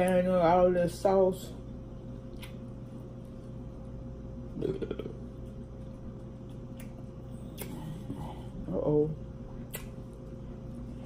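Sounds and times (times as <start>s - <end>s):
low electrical hum: 0.0s - 11.0s
mouth sound: 4.5s - 5.3s.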